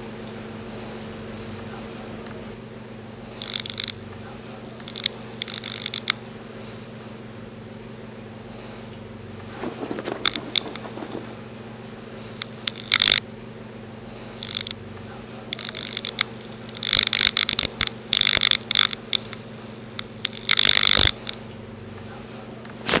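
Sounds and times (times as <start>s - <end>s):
low electrical hum: 0.0s - 23.0s
scraping and rustling noises: 9.4s - 11.4s, 22.7s - 23.0s.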